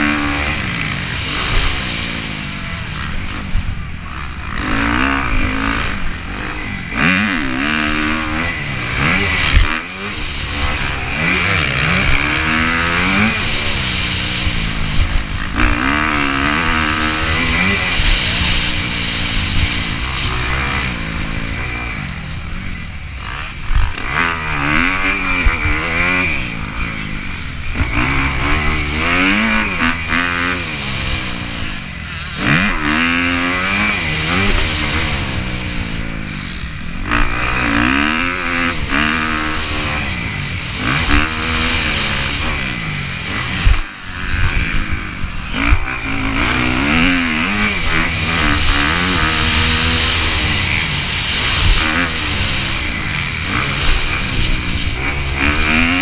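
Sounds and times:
motocross bike engine revving: 0.0s - 56.0s.

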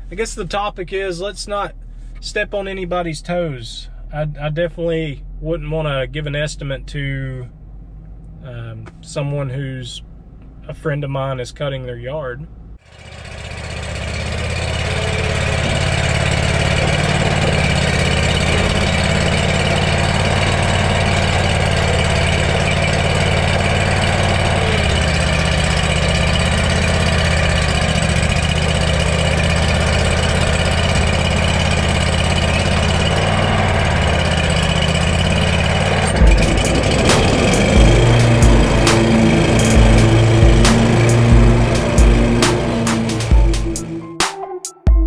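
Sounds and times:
lawn mower engine running: 12.8s - 44.1s.

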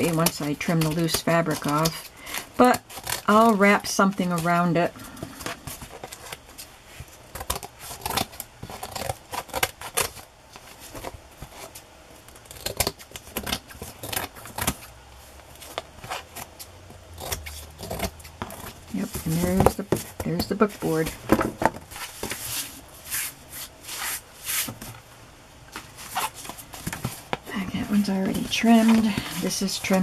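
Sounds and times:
book cover rustling and knocking: 3.3s - 11.8s, 18.2s - 25.0s, 25.7s - 30.0s.

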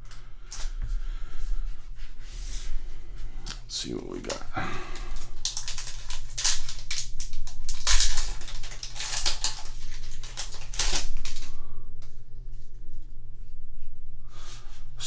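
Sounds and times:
foil wrapper crinkling and tearing: 4.2s - 11.6s.

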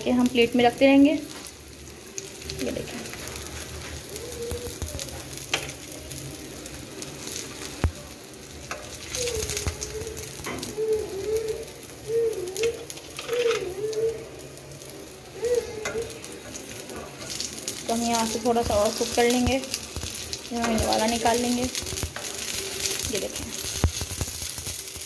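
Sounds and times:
oil sizzling in a frying pan: 0.0s - 25.0s
wavering low-pitched calls: 9.1s - 12.9s.

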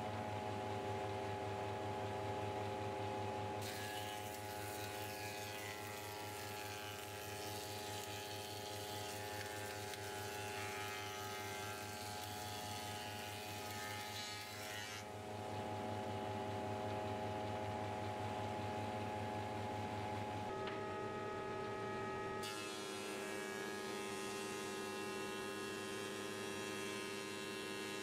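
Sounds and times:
motor hum: 0.0s - 23.4s
hissing wood cutting: 3.6s - 15.0s.

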